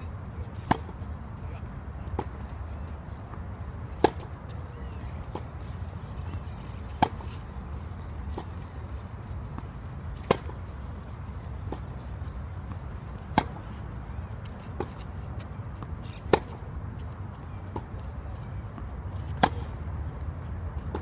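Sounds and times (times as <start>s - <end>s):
tennis racket hitting ball: 0.6s - 1.0s, 4.0s - 4.3s, 6.8s - 7.4s, 10.2s - 10.6s, 13.2s - 13.8s, 16.1s - 16.6s, 19.2s - 19.8s.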